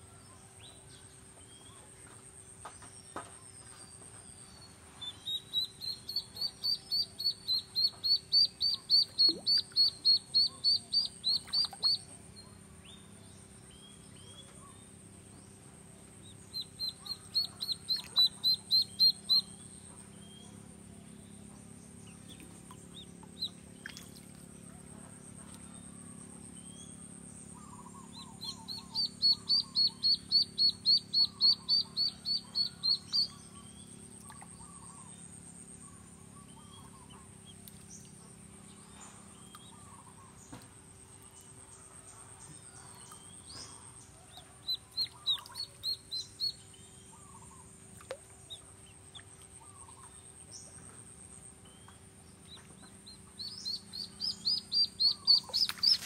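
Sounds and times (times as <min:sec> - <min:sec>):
duckling peeping: 0:05.0 - 0:12.0, 0:16.2 - 0:19.5, 0:27.8 - 0:33.4, 0:44.6 - 0:46.6, 0:52.5 - 0:56.0.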